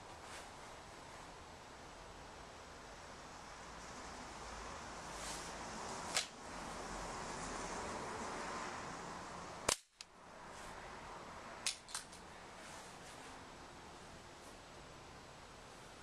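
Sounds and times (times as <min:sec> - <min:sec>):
pellet gun cracks: 0:06.1 - 0:06.4, 0:09.7 - 0:10.1, 0:11.6 - 0:12.2.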